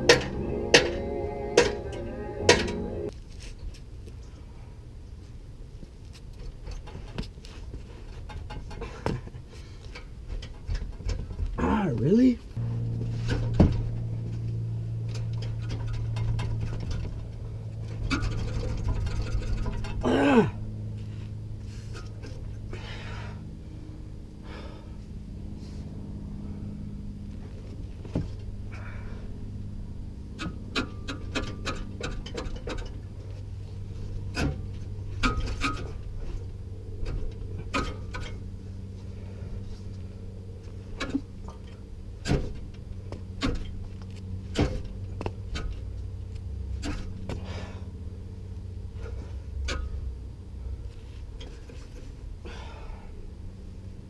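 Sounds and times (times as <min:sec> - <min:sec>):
steady low hum: 0:00.0 - 0:54.0
metal exhaust pipe clinks: 0:12.7 - 0:20.1, 0:34.3 - 0:36.0
person breathing hard: 0:22.7 - 0:23.5, 0:24.4 - 0:25.1, 0:28.7 - 0:29.4, 0:47.3 - 0:48.0, 0:52.4 - 0:53.3.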